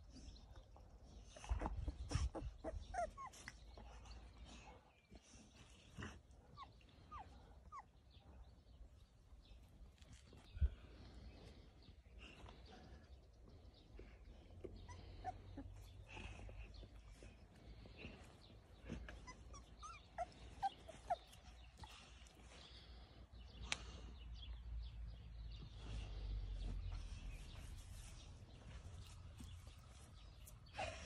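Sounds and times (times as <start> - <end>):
puppies squeaking: 1.5 - 3.6, 18.8 - 22.4.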